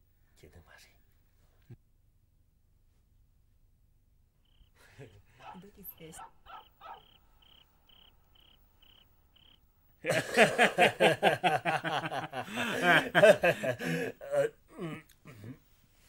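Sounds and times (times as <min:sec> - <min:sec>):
crickets chirping: 0:04.4 - 0:13.6
men laughing loudly: 0:04.8 - 0:07.2, 0:10.0 - 0:14.5.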